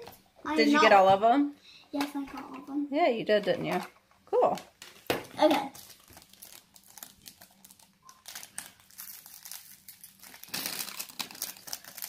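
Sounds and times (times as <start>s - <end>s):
foil packet crinkling: 5.4s - 12.0s.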